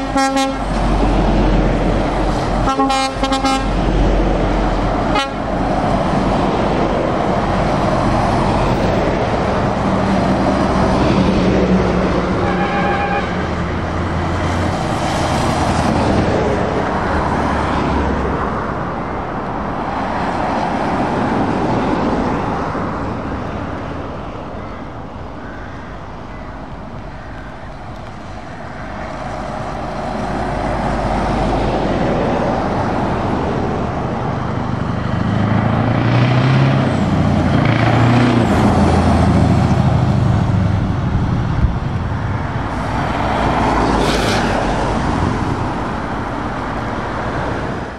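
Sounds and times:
tyres hissing on wet road: 0.0 - 12.6, 42.6 - 47.9
lorry diesel engines: 0.0 - 47.9.

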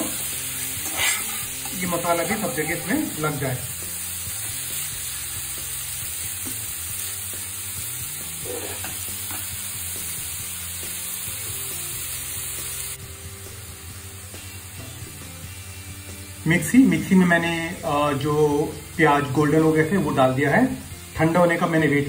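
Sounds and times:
chicken sizzling in a pan: 0.0 - 22.0
spatula turning food: 0.6 - 2.8, 8.2 - 9.6.

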